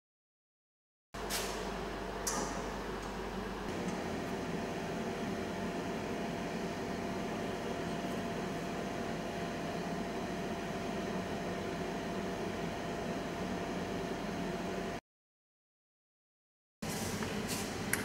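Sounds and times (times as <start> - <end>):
electric motor hum and whine: 1.2 - 15.0.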